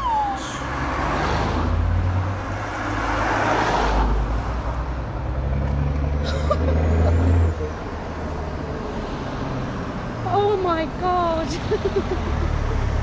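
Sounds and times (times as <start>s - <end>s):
truck diesel engine rumbling: 4.1s - 13.0s.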